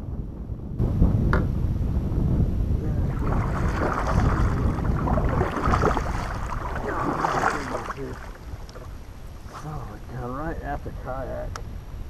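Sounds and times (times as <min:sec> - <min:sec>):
wind rumble on microphone: 0:00.0 - 0:12.0
paddle strokes splashing in water: 0:03.1 - 0:09.6.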